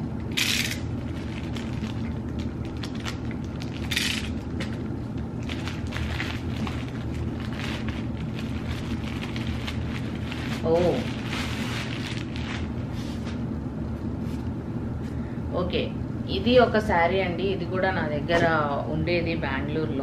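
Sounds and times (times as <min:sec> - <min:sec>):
plastic ripping: 0:00.4 - 0:04.8, 0:05.4 - 0:12.8
plastic packet crinkling: 0:00.6 - 0:12.8.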